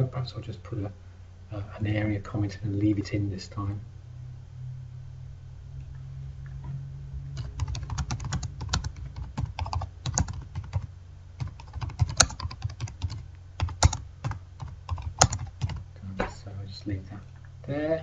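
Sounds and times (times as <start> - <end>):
typing on a keyboard: 7.4 - 14.0, 14.9 - 15.8.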